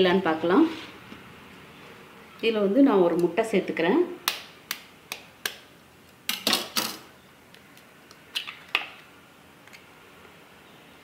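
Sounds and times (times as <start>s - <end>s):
eggshell cracking: 7.5s - 9.1s.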